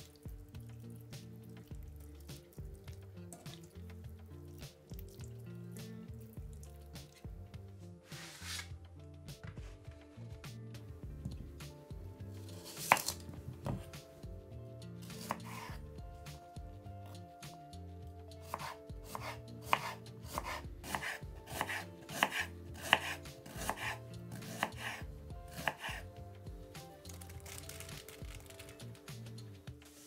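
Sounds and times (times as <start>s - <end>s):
knife chopping onion on board: 12.6s - 14.0s, 15.1s - 15.8s, 18.4s - 26.1s.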